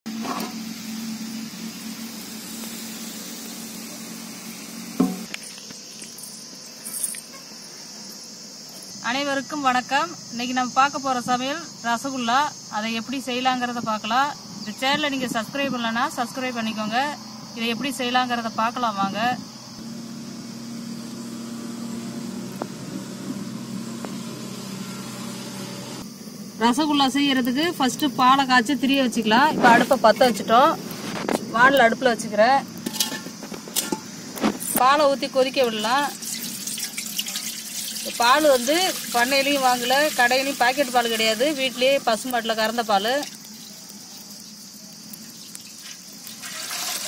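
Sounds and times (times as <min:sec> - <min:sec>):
hiss: 0:00.1 - 0:05.8, 0:36.1 - 0:47.0
insects chirring: 0:00.1 - 0:47.0
sharp knock: 0:05.0 - 0:05.3.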